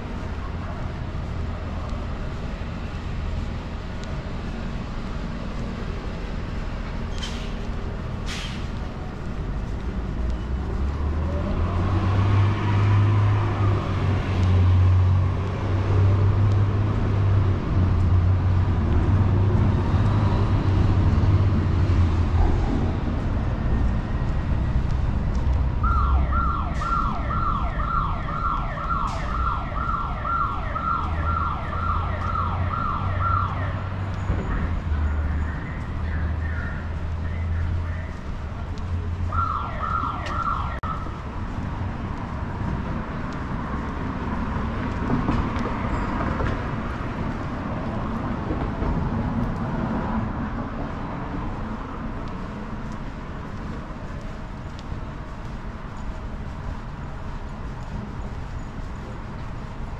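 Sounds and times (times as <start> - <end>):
heavy vehicle engine rumble: 0.0 - 27.4
city traffic going by: 0.0 - 59.9.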